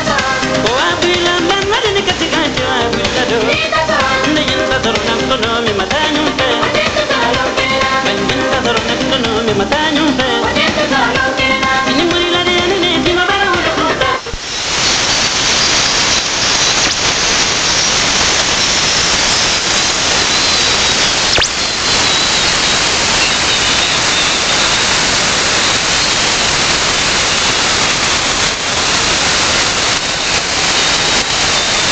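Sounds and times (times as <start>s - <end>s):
shortwave radio static: 13.8s - 31.9s
faint high whistle: 20.2s - 22.6s
single click: 21.3s - 21.6s.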